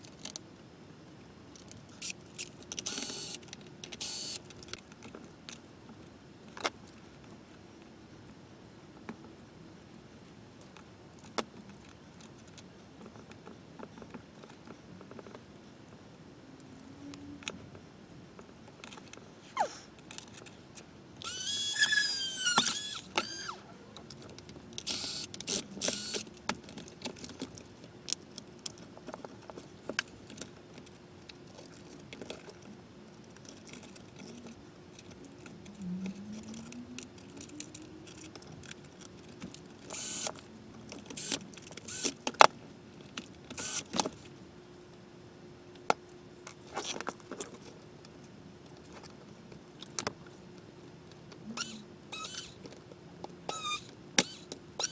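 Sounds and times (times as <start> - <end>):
plastic parts clicking and rattling: 0.0 - 0.5, 1.5 - 7.0, 20.0 - 44.3
squeaky plastic creak: 2.8 - 3.4, 21.2 - 24.1, 24.8 - 26.3, 39.9 - 40.3, 51.5 - 52.7, 53.5 - 54.9.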